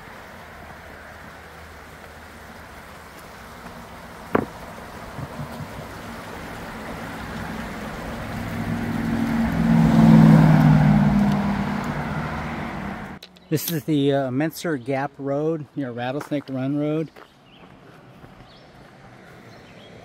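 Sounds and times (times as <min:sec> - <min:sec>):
stream rushing: 0:00.0 - 0:13.2
motor vehicle approaching: 0:00.0 - 0:13.4, 0:17.1 - 0:20.0.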